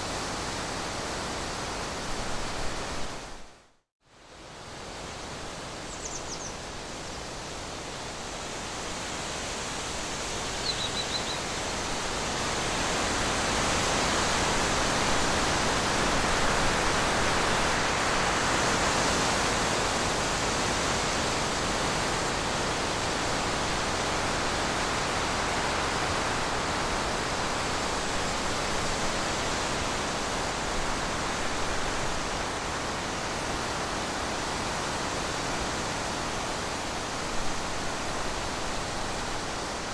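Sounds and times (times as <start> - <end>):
faint high chirp: 5.9 - 6.5, 10.6 - 11.4.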